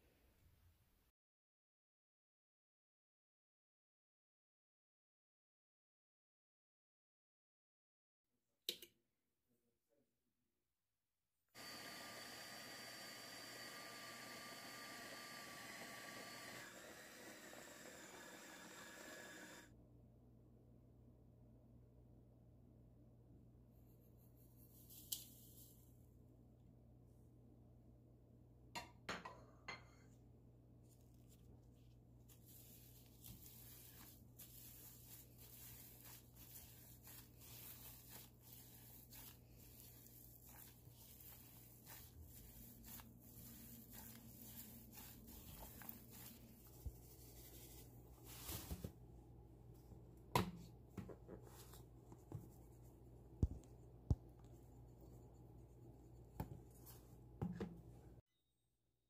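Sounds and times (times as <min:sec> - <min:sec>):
hand kneading ground meat: 0:30.8 - 0:48.8.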